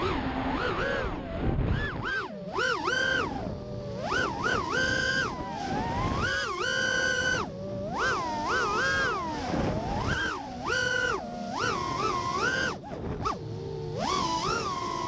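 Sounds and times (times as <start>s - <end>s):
quadcopter motors whining: 0.0s - 15.0s.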